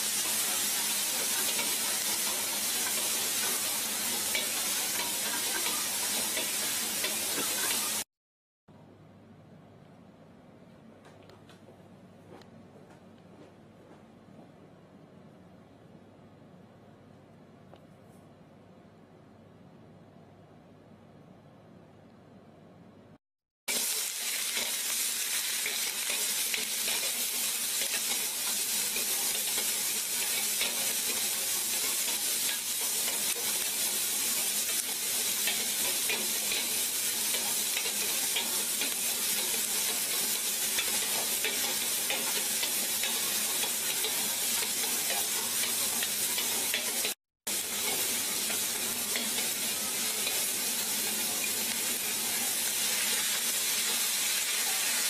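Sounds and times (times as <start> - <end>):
vegetables sizzling in a wok: 0.0 - 8.1, 23.7 - 55.0.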